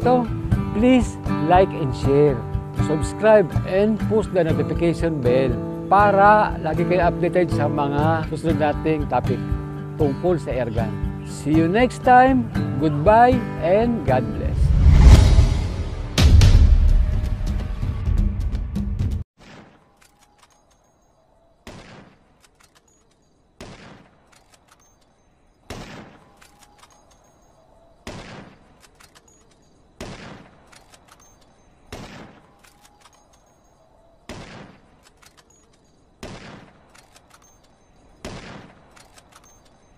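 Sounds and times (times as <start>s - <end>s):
faint clicks: 20.0s - 21.2s, 22.3s - 23.4s, 24.2s - 25.2s, 28.7s - 29.8s, 30.6s - 31.6s, 32.5s - 33.8s, 34.9s - 36.1s, 36.9s - 38.2s, 38.8s - 39.9s
gunshots: 21.6s - 22.4s, 23.6s - 24.4s, 25.6s - 26.4s, 28.0s - 28.8s, 30.0s - 31.1s, 31.9s - 32.6s, 34.3s - 35.2s, 36.2s - 37.2s, 38.2s - 39.3s.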